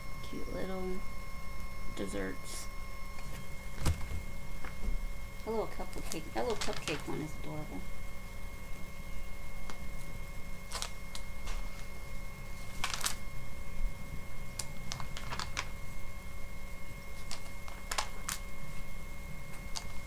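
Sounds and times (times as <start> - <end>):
faint high whine: 0.0 - 20.0
low hum: 0.0 - 20.0
magazine pages rustling: 6.4 - 7.2, 10.7 - 11.9, 12.5 - 13.2, 14.6 - 15.8, 17.1 - 18.9.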